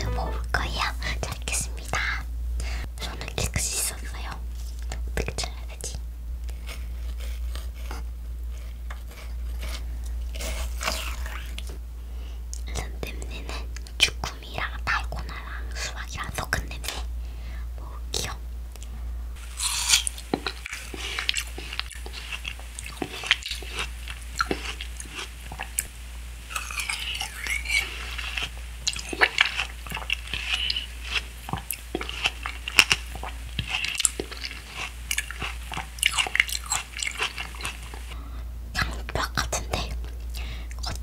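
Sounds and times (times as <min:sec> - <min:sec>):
person chewing crunchy food: 0:06.5 - 0:11.8, 0:19.4 - 0:25.9, 0:26.5 - 0:38.2.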